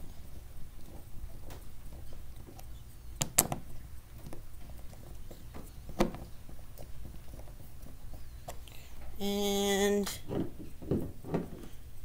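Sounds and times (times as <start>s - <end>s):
screwdriver clicks and knocks: 3.2s - 4.4s.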